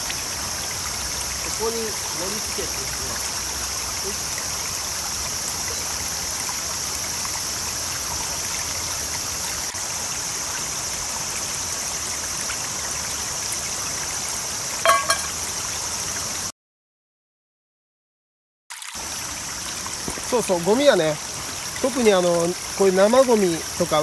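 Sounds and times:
stream babbling over rocks: 0.0s - 15.6s, 18.9s - 24.0s
short ringing clinks: 14.9s - 15.4s.

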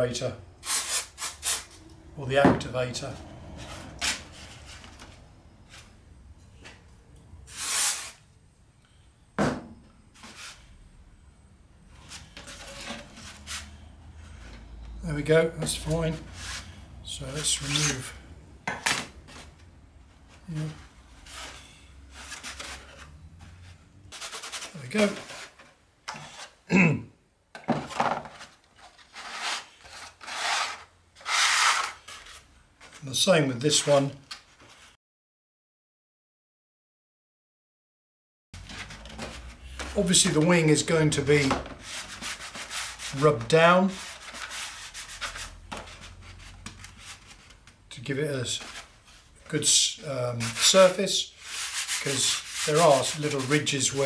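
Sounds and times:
plastic pieces rubbing and scraping: 50.4s - 54.0s.

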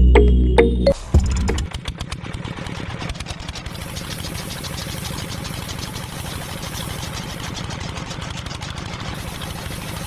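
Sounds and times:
stalks rattling against spinning drum: 1.3s - 10.0s
small electric motor whirring: 3.2s - 10.0s.

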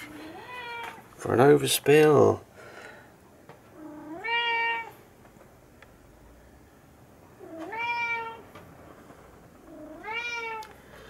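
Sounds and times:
cat meowing: 0.2s - 1.0s, 3.8s - 4.9s, 7.4s - 8.4s, 9.7s - 10.7s.

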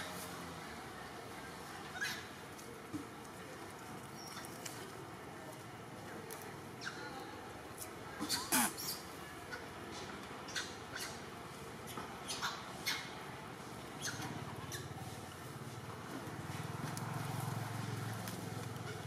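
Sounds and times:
monkeys squeaking: 8.2s - 9.1s, 14.0s - 15.0s.

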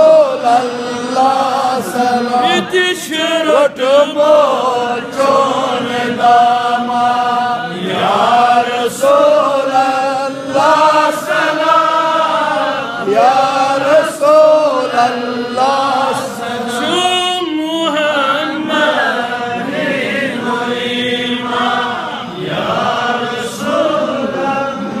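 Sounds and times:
man chanting into a microphone: 0.0s - 19.6s.

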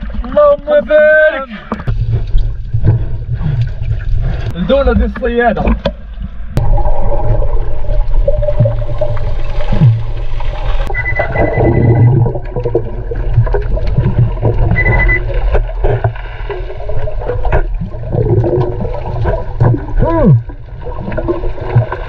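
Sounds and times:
clicks and gurgles: 1.5s - 22.0s
underwater rumble: 1.6s - 22.0s
short high beeps: 10.9s - 12.2s, 14.7s - 15.2s.

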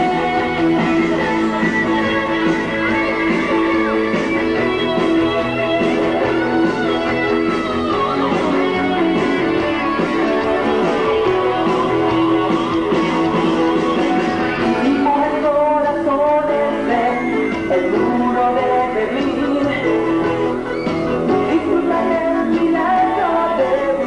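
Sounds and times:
steady drum beat: 0.0s - 15.1s
electric guitar: 0.0s - 24.0s
live pop-rock band: 0.0s - 24.0s.

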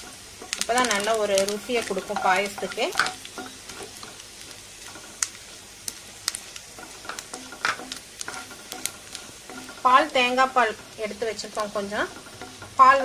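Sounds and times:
frying sizzle: 0.0s - 13.0s
wooden spatula knocking pan: 6.3s - 13.0s.

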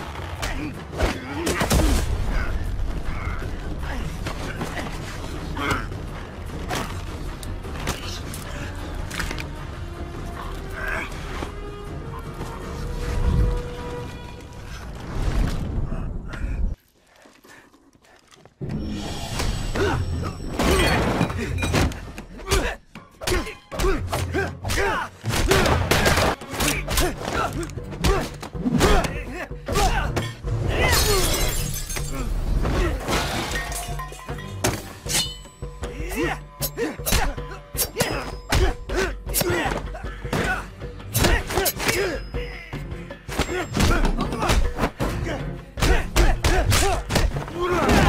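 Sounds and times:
film score: 0.0s - 48.0s
grunts of effort: 35.8s - 42.7s.

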